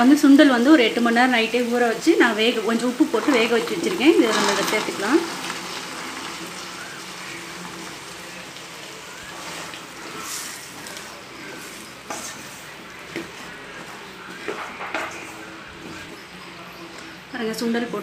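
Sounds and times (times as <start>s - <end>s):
gravy sizzling and bubbling: 0.0s - 18.0s
spatula scraping and tapping pan: 9.2s - 16.2s.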